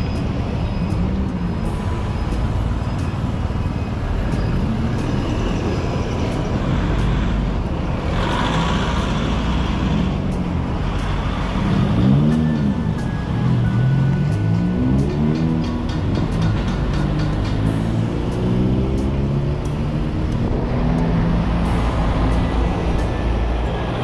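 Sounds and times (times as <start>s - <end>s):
cars passing: 0.0s - 24.0s
low traffic rumble: 0.0s - 24.0s.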